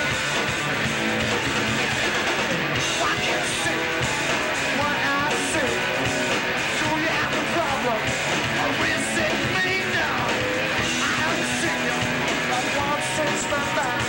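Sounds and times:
live rock band playing: 0.0 - 14.0
man singing and shouting: 2.8 - 14.0.

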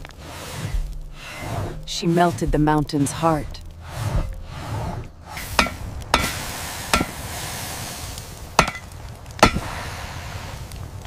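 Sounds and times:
steady hiss: 5.3 - 11.0
hammer striking metal on anvil: 5.6 - 6.3, 6.9 - 7.1, 8.6 - 8.8.

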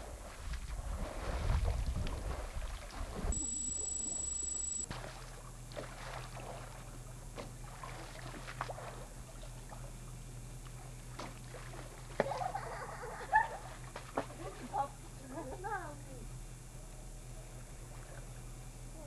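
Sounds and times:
small water splashes: 0.0 - 3.4, 4.9 - 14.8
low hum: 0.0 - 19.0
shallow river water: 0.0 - 19.0.

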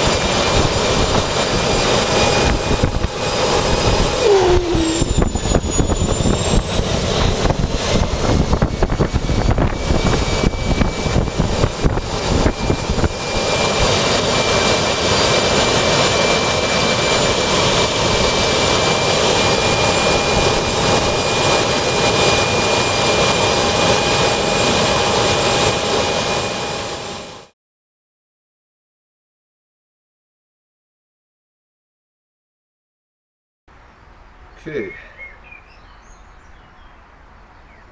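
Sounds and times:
high turbine whine: 0.0 - 27.4
jet turbine engine roaring: 0.0 - 27.5.

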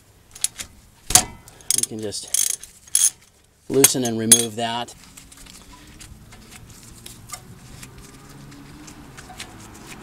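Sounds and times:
gloved hands clicking and tapping metal: 3.8 - 4.6.

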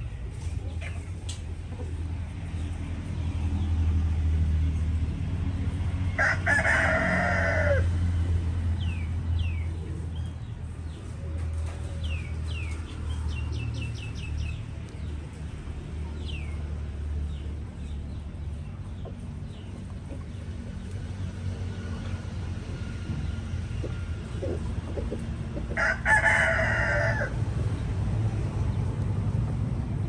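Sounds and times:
rooster crowing: 6.2 - 7.9, 25.8 - 27.4
small birds chirping: 8.8 - 25.7.

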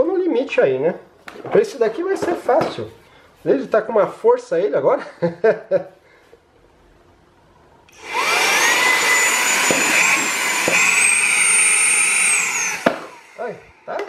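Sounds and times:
mini vacuum high-pitched whine: 7.9 - 14.0.

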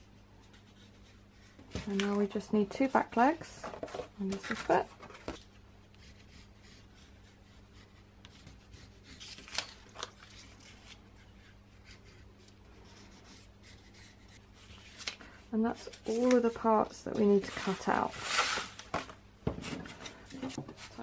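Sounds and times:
pencil scratching on cardboard: 0.0 - 1.8, 6.0 - 9.3, 11.2 - 14.9.

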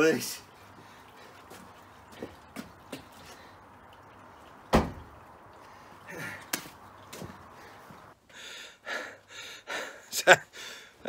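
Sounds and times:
heavy thud: 4.7 - 5.1
man breathing with effort: 7.4 - 11.0.

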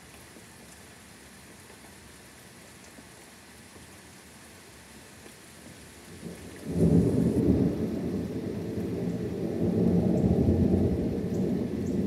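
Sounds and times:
steady rain: 0.0 - 12.0
thunder rumbling: 6.2 - 12.0.

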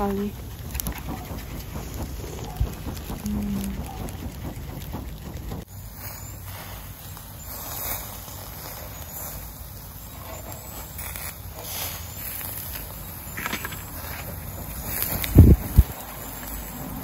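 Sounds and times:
meat sizzling on grill: 5.9 - 16.9.

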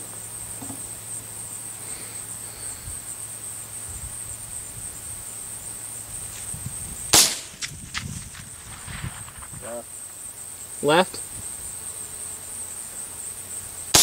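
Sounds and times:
insects chirring: 0.0 - 14.0
rifle shot: 7.1 - 9.6.

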